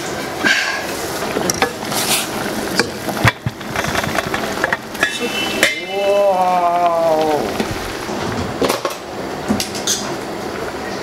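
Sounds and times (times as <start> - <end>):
boiling soup hiss: 0.0 - 11.0.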